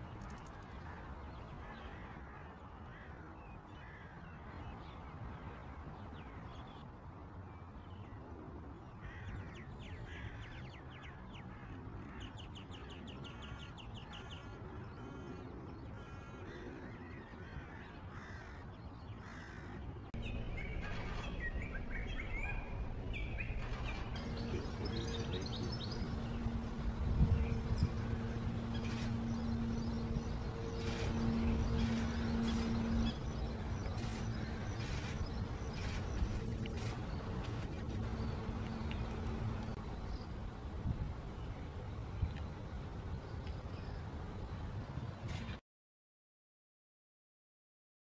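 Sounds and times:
low outdoor rumble: 0:19.3 - 0:45.6
finches twittering and calling: 0:20.2 - 0:44.2.

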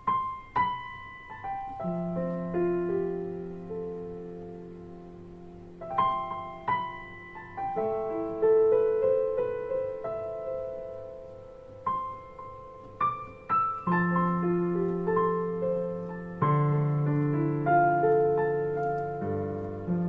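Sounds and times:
slow solo piano piece: 0:00.0 - 0:20.0.

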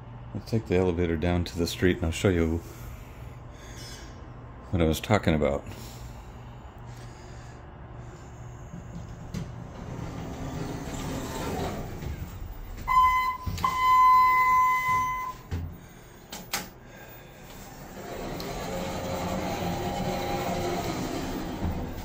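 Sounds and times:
elevator electronic beep: 0:12.4 - 0:15.6.

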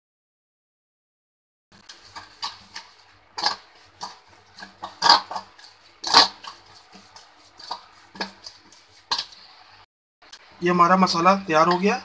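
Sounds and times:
hand scraping metal bowl: 0:01.8 - 0:09.5.

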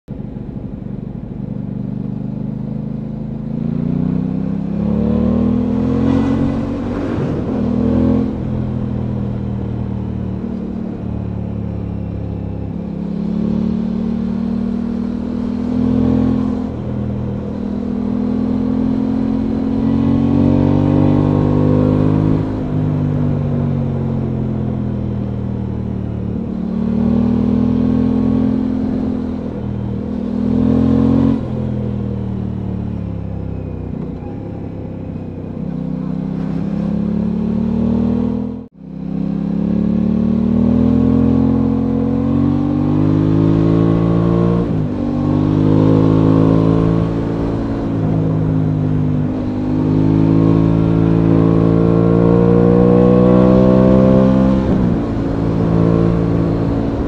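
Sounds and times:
motorcycle engine accelerating: 0:00.1 - 0:57.0.

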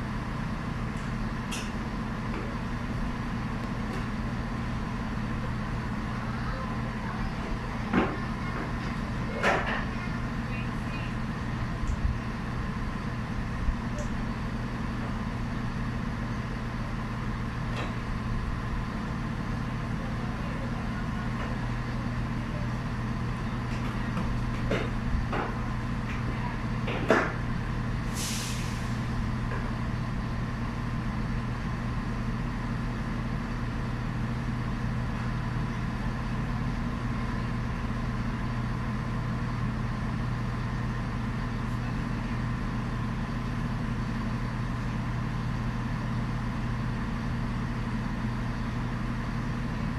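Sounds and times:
train engines idling: 0:00.0 - 0:49.9
air hiss: 0:28.0 - 0:29.2.

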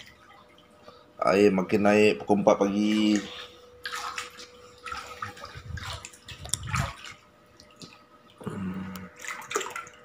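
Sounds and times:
water splashing from wading: 0:02.7 - 0:10.0
short low hum: 0:03.0 - 0:09.2.

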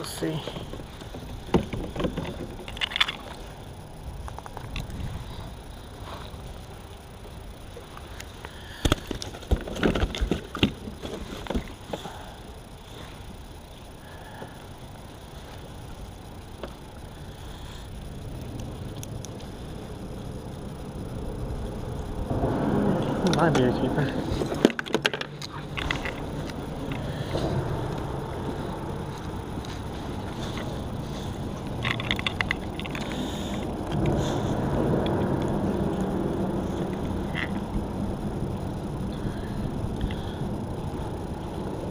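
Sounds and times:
low rumble of wind: 0:00.0 - 0:41.9
water rumbling: 0:18.2 - 0:41.9.

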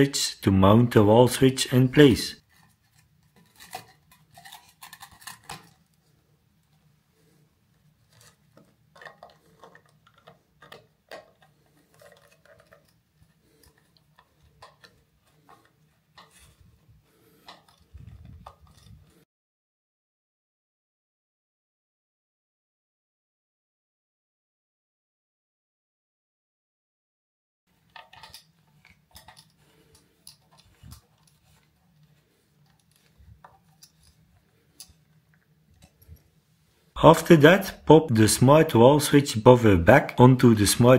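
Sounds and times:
screwdriver clicking and scraping: 0:02.4 - 0:05.9, 0:08.1 - 0:16.7, 0:17.3 - 0:19.2, 0:27.8 - 0:36.2.

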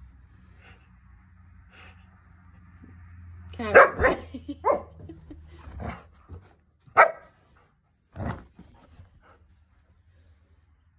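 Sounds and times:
puppy barking: 0:03.7 - 0:05.0, 0:06.9 - 0:07.4.

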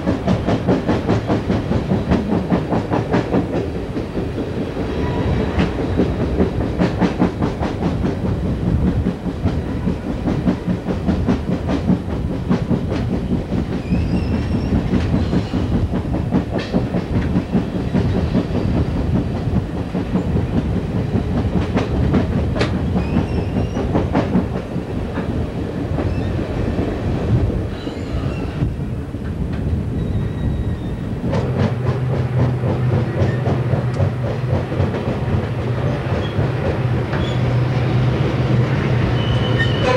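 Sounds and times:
train rumble and rushing air: 0:00.0 - 0:39.9
faint wheel squeal: 0:39.2 - 0:39.9.

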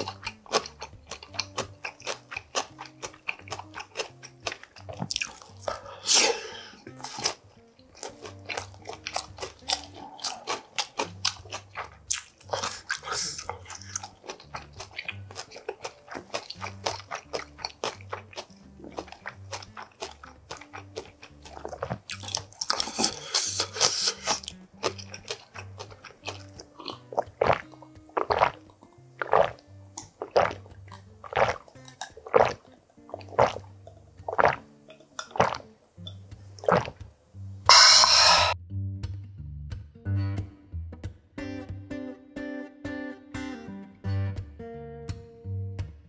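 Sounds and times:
chewing with crunches: 0:00.0 - 0:06.0, 0:06.9 - 0:37.1
slurping broth: 0:00.0 - 0:07.4, 0:08.0 - 0:37.1, 0:37.7 - 0:38.6
background music: 0:00.0 - 0:46.0
loud gulps of water: 0:31.2 - 0:33.7, 0:34.3 - 0:34.7, 0:35.3 - 0:35.6, 0:36.6 - 0:37.0.

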